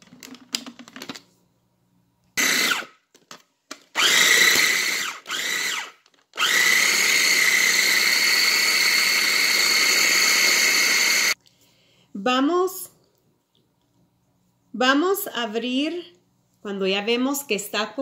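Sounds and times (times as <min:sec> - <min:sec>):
food processor motor whining: 0:02.4 - 0:03.0, 0:04.0 - 0:11.4.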